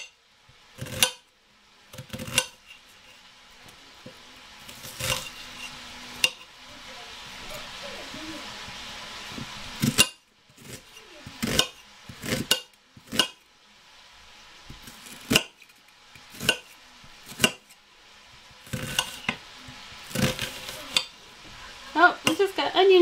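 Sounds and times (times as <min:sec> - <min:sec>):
knife cutting onion: 0:00.8 - 0:01.3, 0:02.0 - 0:03.2, 0:04.2 - 0:06.5, 0:09.4 - 0:13.4, 0:14.7 - 0:17.7, 0:18.4 - 0:21.2.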